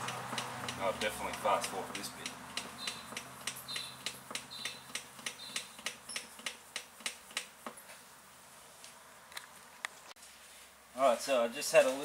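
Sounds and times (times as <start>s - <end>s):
hand oil pump clicking: 0.0s - 7.8s.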